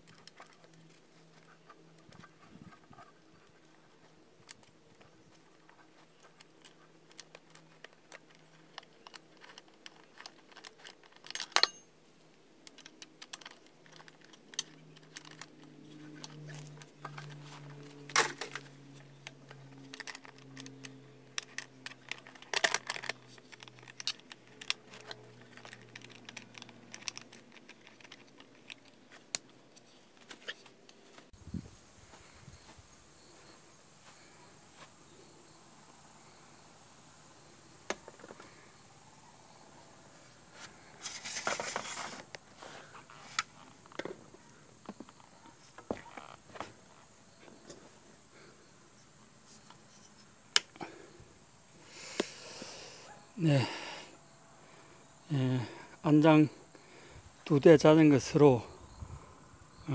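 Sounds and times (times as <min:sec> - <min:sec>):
small metal clicks and clinks: 0:06.4 - 0:11.9.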